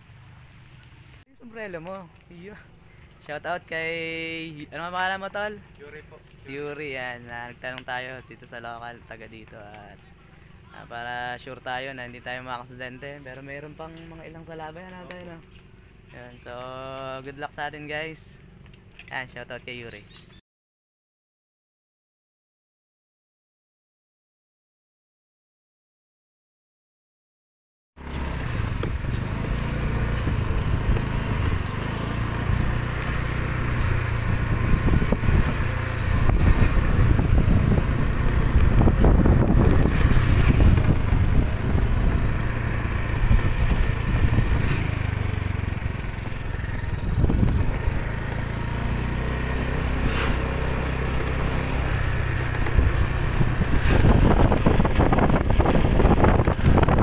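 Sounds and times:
motorcycle engine running: 0.0 - 1.2, 28.0 - 57.0.

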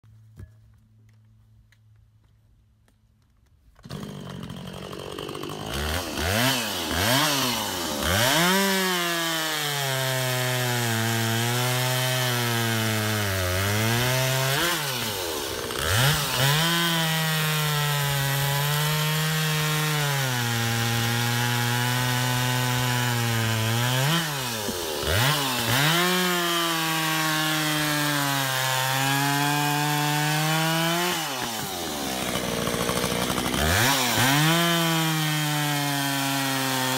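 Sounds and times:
chainsaw cutting logs: 3.5 - 36.9.

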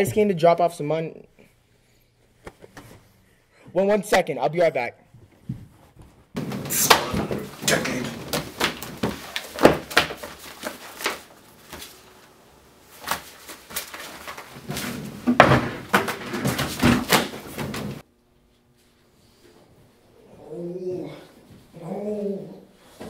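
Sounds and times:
pages rustling: 6.4 - 12.3, 12.9 - 15.2.

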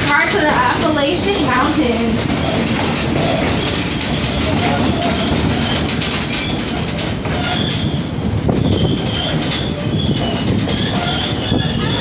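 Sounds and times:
train wheels rumbling on rails: 0.0 - 12.0
high-pitched wheel squeals: 4.9 - 12.0.

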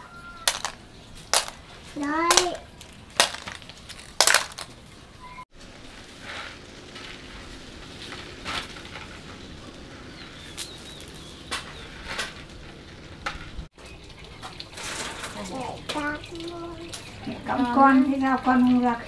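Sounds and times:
sharp clicks and knocks: 0.5 - 1.6, 2.3 - 4.7
bird chirp: 10.1 - 12.0.

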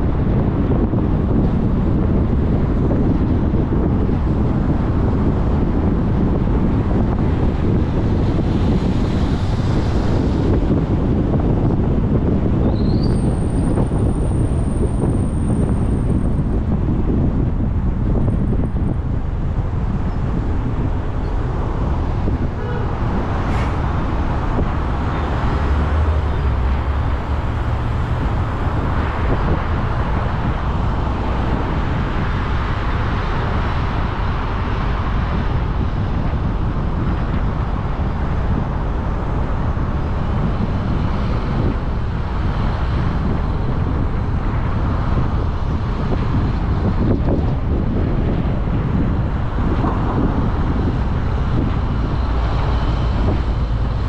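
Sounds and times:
car road noise: 0.0 - 54.0.

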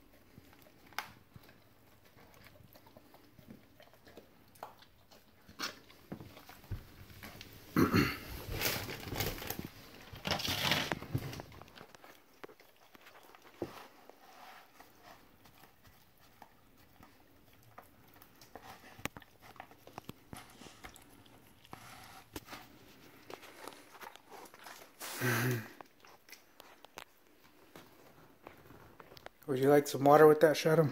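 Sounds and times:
dog tearing and chewing meat: 0.0 - 7.8, 8.4 - 29.4.

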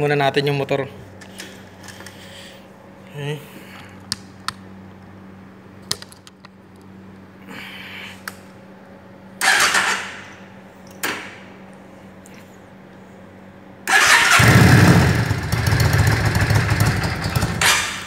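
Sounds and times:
motorcycle engine starting: 9.4 - 10.2, 13.9 - 18.0.

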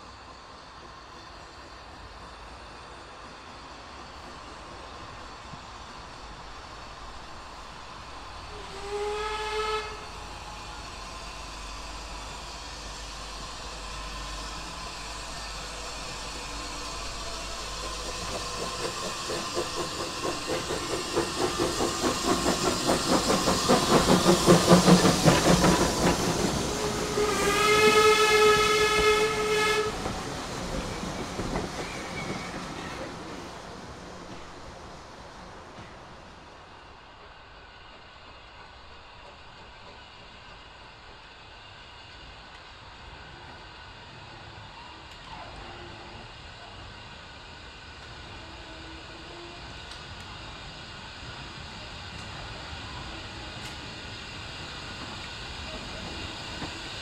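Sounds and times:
train wheels rolling on rails: 0.2 - 57.0
steam locomotive exhaust beats: 0.5 - 34.6, 35.7 - 57.0
steam locomotive whistle: 8.5 - 10.8, 24.9 - 30.1, 48.2 - 49.8.

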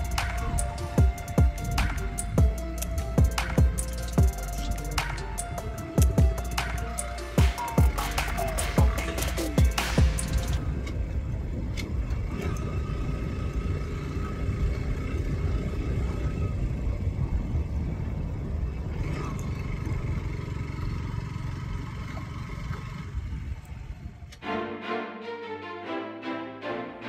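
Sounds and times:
wind rumble on microphone: 0.0 - 6.5, 10.0 - 24.4
motorcycle engine: 11.9 - 24.2.

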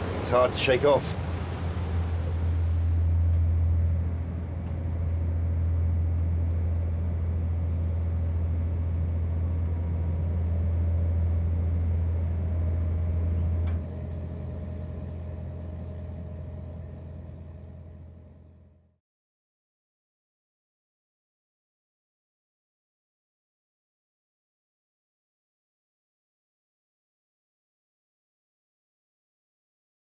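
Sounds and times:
boat engine droning: 0.0 - 18.9.

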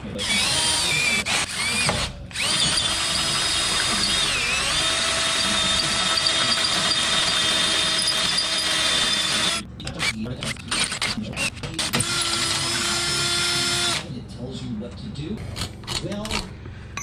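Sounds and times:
cordless drill boring through steel: 0.2 - 10.1, 11.4 - 14.0.

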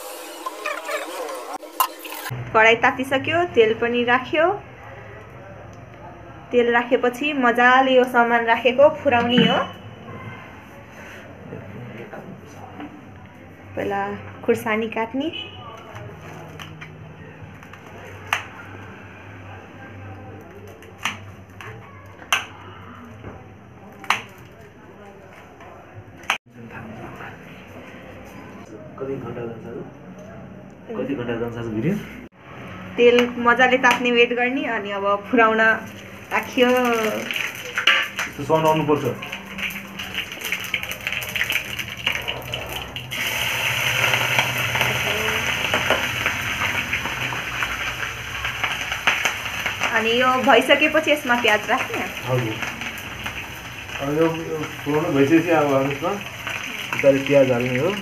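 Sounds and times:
oil sizzling and crackling: 0.0 - 2.4, 35.6 - 58.0.

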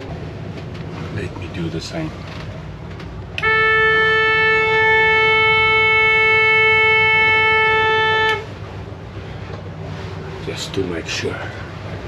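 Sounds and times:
boat horn long blast: 3.4 - 9.0.

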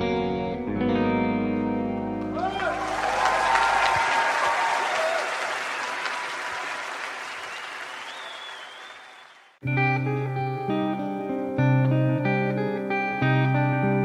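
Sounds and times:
audience applauding: 2.3 - 9.6.

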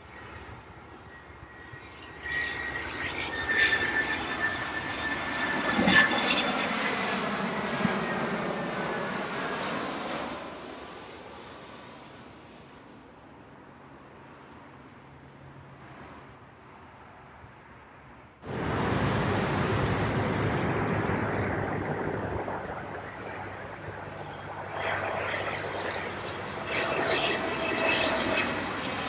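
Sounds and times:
airliner engines roaring: 0.0 - 29.0
high whining tones: 18.5 - 24.4.

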